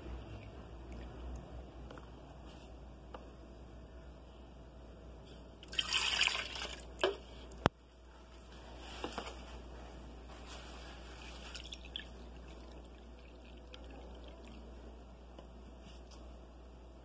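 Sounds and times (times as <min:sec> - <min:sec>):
milk pouring into cup: 0:05.6 - 0:07.2, 0:11.2 - 0:14.8.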